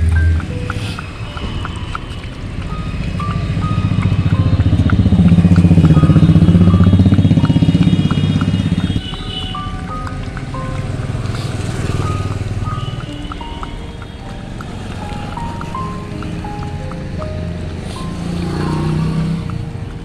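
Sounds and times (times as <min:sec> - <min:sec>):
light melody of high notes: 0:00.0 - 0:20.0
vehicle engine passing by: 0:00.0 - 0:20.0.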